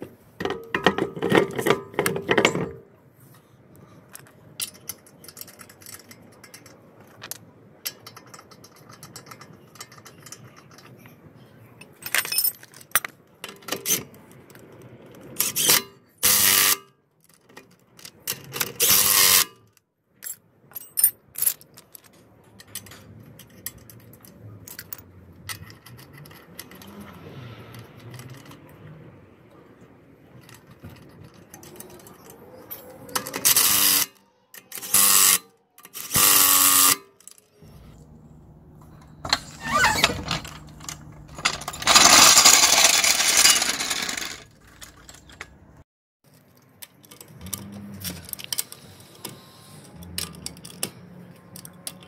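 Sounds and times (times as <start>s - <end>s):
metallic clinking of wheel nuts: 30.4s - 37.9s, 38.7s - 45.5s
cordless power wrench whirring: 36.0s - 37.0s, 39.3s - 44.4s.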